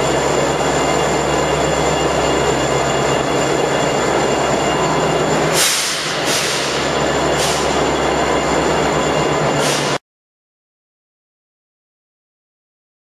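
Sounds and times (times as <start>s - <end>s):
diesel locomotive engine drone: 0.0s - 10.0s
sharp air hisses: 5.5s - 7.8s, 9.6s - 10.0s.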